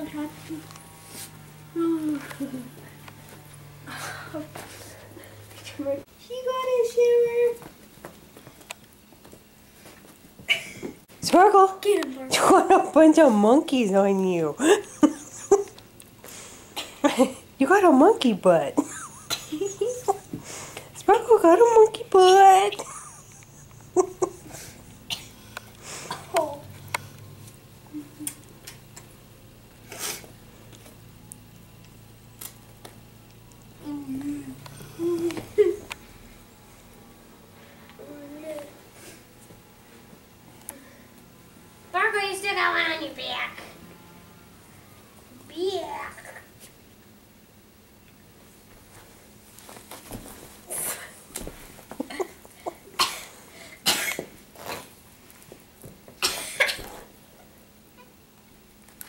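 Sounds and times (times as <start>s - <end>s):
steady low hum: 0.0s - 59.0s
rustle of toy and fur: 0.4s - 1.5s.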